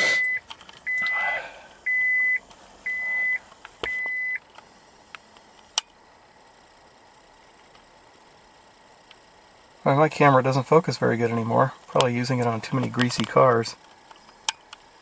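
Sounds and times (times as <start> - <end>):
car warning chime beeping: 0.1 - 4.4.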